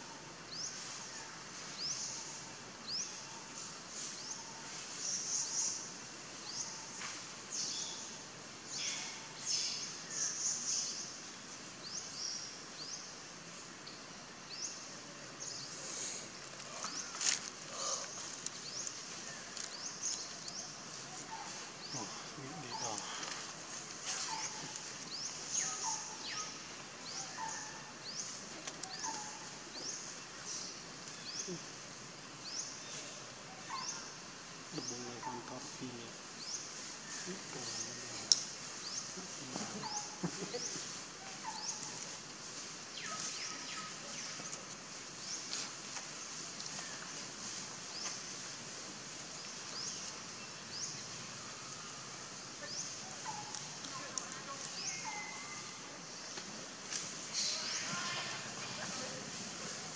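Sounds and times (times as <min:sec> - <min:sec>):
background hiss: 0:00.0 - 0:59.9.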